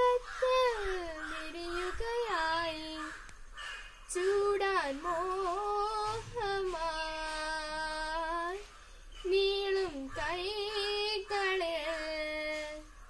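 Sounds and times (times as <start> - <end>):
girl singing solo: 0.0 - 3.0.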